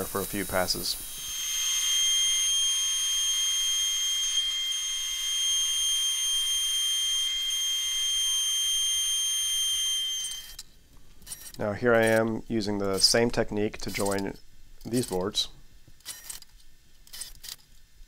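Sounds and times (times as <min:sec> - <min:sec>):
thickness planer whine: 0:00.0 - 0:10.6.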